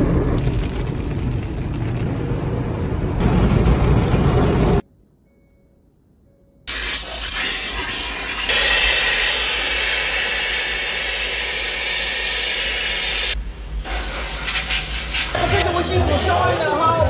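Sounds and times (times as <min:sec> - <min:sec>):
vacuum hose sucking air: 0:06.7 - 0:15.6.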